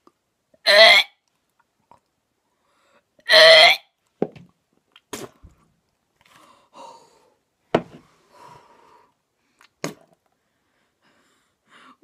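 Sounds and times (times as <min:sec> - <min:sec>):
boy breathing and gasping: 0:10.4 - 0:12.0.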